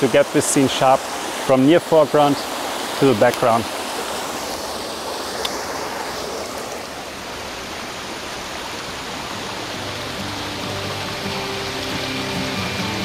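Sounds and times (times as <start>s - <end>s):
stream rushing over rocks: 0.0s - 13.0s.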